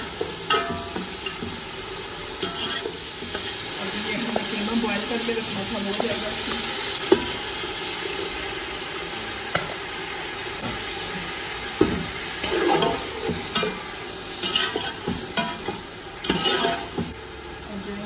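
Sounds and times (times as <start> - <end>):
meat sizzling in hot oil: 0.0 - 18.0
metal spoon scraping a pot: 14.4 - 16.9.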